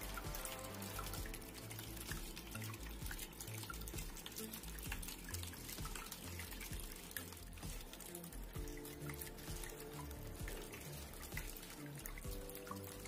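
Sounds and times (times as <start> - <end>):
water drips: 0.0 - 13.0
water trickling into fountain basin: 0.0 - 13.0.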